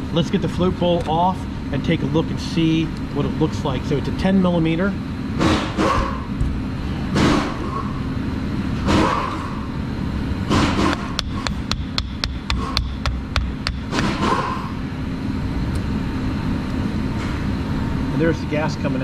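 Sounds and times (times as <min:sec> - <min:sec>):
wrench knocking on bolt: 0:11.2 - 0:13.8.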